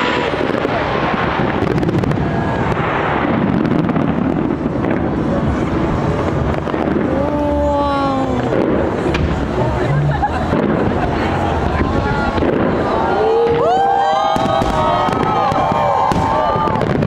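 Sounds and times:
fireworks exploding: 0:00.0 - 0:17.0
crowd cheering: 0:09.5 - 0:17.0.

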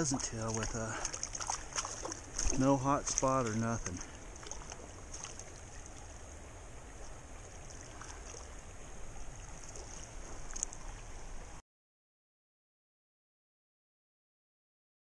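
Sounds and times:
creek running over rocks: 0:00.0 - 0:11.6
faint ticks: 0:09.6 - 0:10.9.

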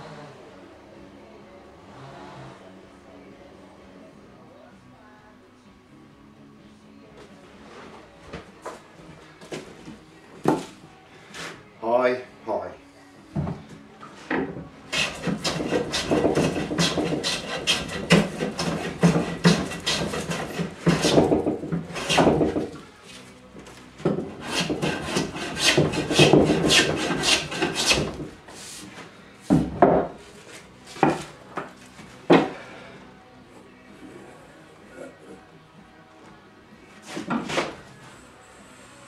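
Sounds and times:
hand tool scraping wood: 0:14.3 - 0:23.2, 0:24.0 - 0:29.0, 0:37.0 - 0:37.8.

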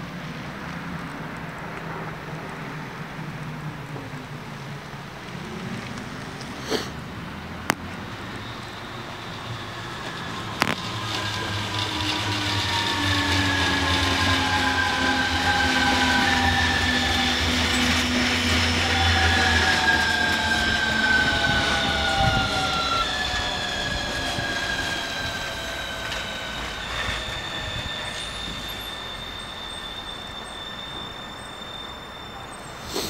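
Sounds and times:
train passing: 0:00.0 - 0:33.0
high whining tones: 0:07.5 - 0:33.0.

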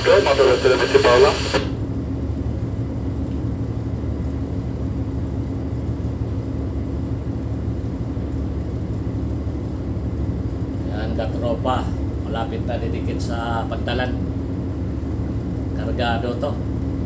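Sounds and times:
diesel engines droning: 0:00.0 - 0:02.0.

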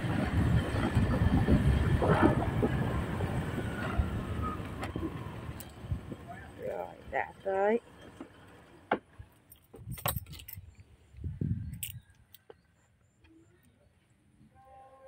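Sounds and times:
light metallic jangling: 0:09.4 - 0:10.8, 0:11.6 - 0:12.5.

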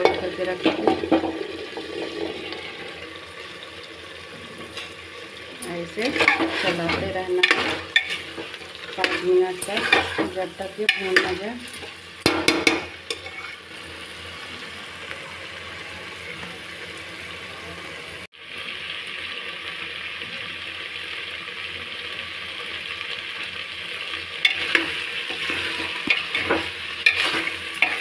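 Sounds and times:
food sizzling in a pot: 0:00.0 - 0:28.0
metal spoon scraping pot: 0:05.8 - 0:13.7, 0:24.4 - 0:28.0
spatula stirring: 0:05.8 - 0:13.7, 0:24.4 - 0:28.0.

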